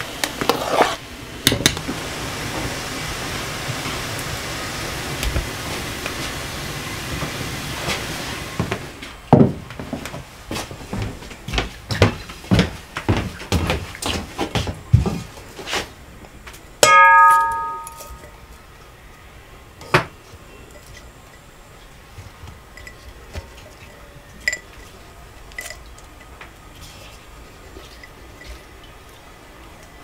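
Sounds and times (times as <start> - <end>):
metal bowl clanging on table: 16.8 - 18.4
glass jars clinking: 24.4 - 24.9, 25.5 - 25.8.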